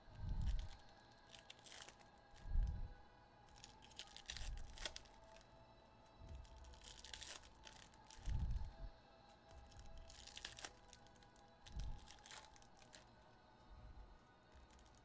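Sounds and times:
foil wrappers crinkling and tearing: 0.2s - 2.8s, 3.5s - 5.6s, 6.2s - 15.0s.

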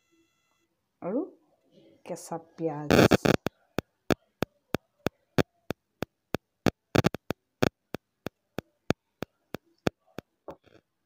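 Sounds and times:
steady ticking clicks: 2.9s - 10.8s.

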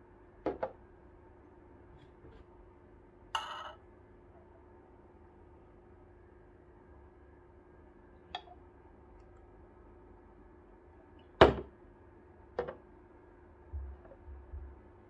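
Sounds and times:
faint steady hum: 0.0s - 15.0s
sharp knock on countertop: 11.4s - 11.7s.

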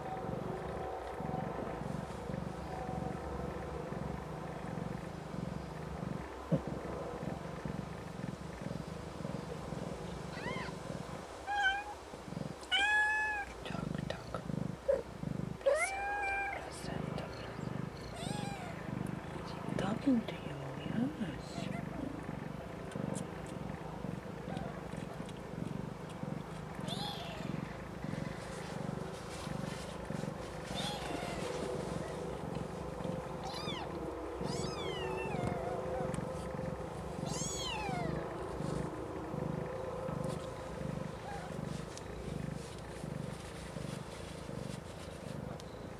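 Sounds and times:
cat purring: 0.0s - 45.9s
kitten mewing: 26.8s - 27.6s, 33.4s - 36.2s, 37.2s - 38.2s.

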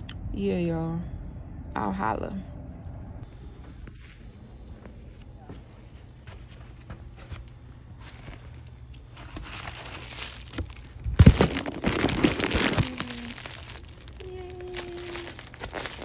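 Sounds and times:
packaging crinkling and rustling: 8.0s - 16.0s.

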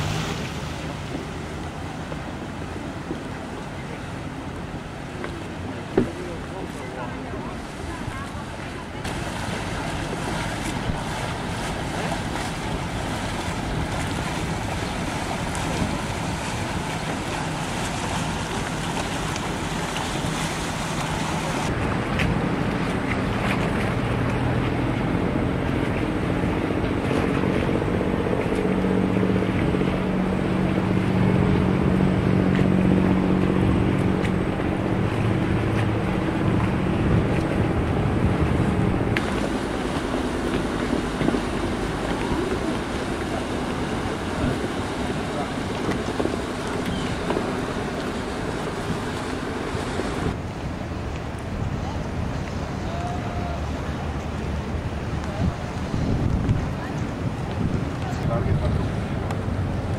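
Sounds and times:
boat engine droning: 0.0s - 59.9s
distant motorboats: 0.0s - 59.9s
water splashing: 0.0s - 59.9s
wind on microphone: 5.7s - 59.9s.

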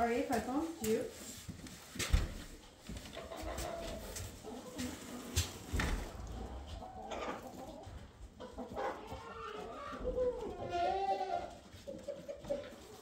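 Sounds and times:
chickens clucking: 2.6s - 13.0s.

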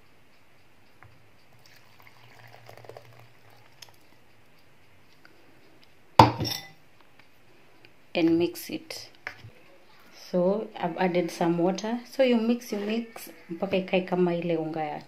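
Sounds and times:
liquid pouring into a bowl: 1.6s - 4.2s.

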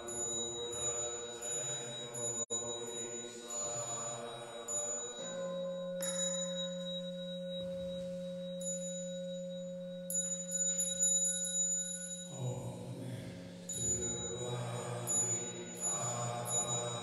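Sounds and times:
voices chanting: 0.0s - 5.4s, 12.3s - 17.0s
handheld bell ringing: 0.0s - 12.7s, 13.7s - 17.0s.

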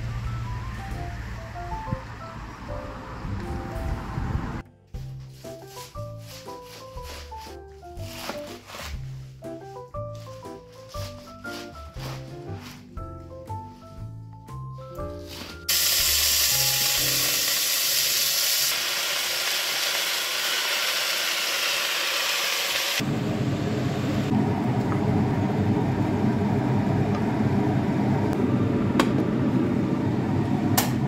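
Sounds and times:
steady low rumble: 0.0s - 4.6s
music: 0.0s - 18.3s
spinach sizzling in a pot: 15.3s - 23.0s.

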